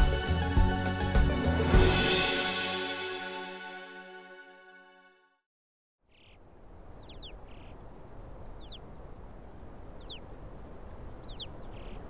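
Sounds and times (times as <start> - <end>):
birds whistling: 7.0 - 7.8, 8.6 - 8.8, 10.0 - 10.2, 11.2 - 12.0.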